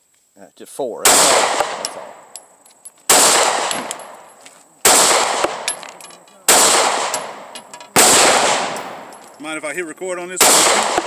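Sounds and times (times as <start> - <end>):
gunshots with long echo: 1.0 - 2.3, 3.1 - 4.2, 4.8 - 5.8, 6.5 - 9.1, 10.4 - 11.0.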